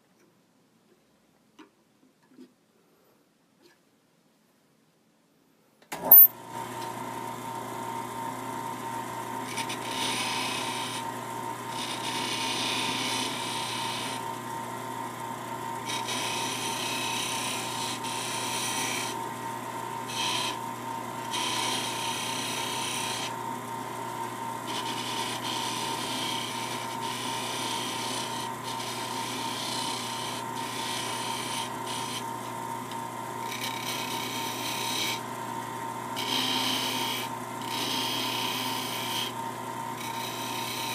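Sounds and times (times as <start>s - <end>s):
lathe humming: 6.0s - 40.9s
hand tool scraping spinning wood: 9.3s - 14.7s, 15.4s - 35.5s, 36.1s - 40.9s.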